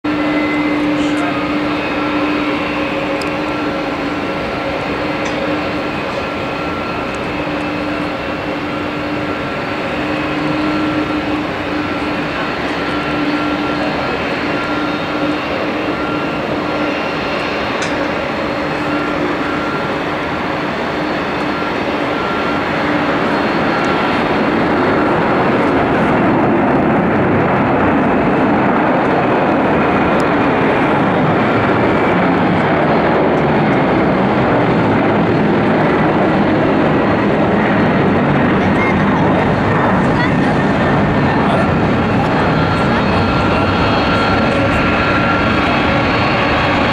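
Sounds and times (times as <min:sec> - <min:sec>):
engine whine: 0:00.0 - 0:46.9
jet engines at takeoff power: 0:00.0 - 0:46.9.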